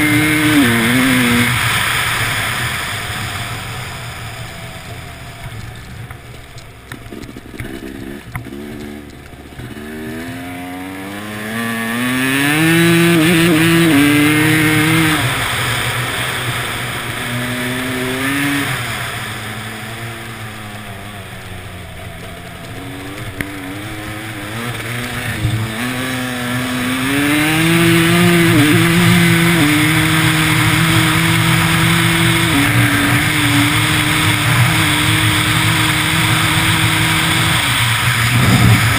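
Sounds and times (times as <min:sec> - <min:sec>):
dirt bike engine accelerating: 0:00.0 - 0:38.9.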